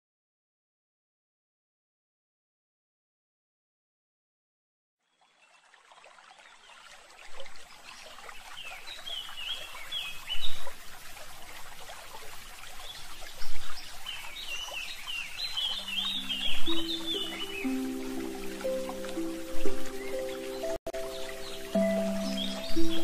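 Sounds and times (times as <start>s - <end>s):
small birds chirping: 5.0s - 23.0s
water trickling: 5.0s - 23.0s
water splashes: 5.2s - 23.0s
music: 15.8s - 23.0s.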